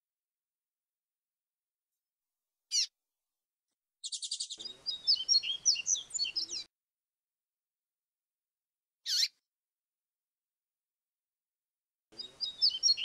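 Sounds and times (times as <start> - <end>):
bird song with trill and whistles: 2.7 - 2.9, 4.0 - 6.7, 9.0 - 9.4, 12.2 - 13.0.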